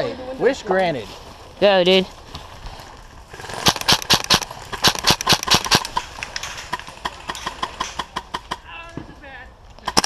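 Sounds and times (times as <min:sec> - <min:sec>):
airsoft rifles firing: 0:03.3 - 0:08.7.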